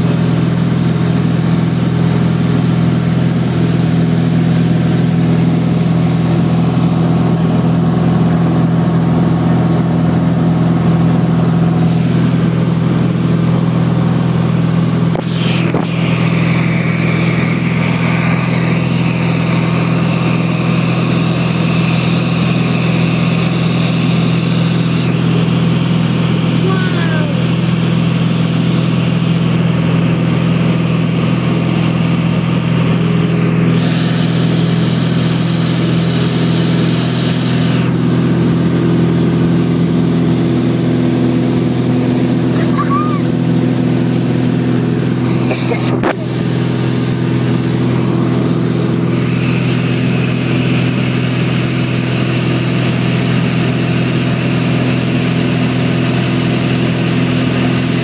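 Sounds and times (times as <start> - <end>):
airplane engine drone: 0.0 - 58.0
rushing air: 44.8 - 51.0.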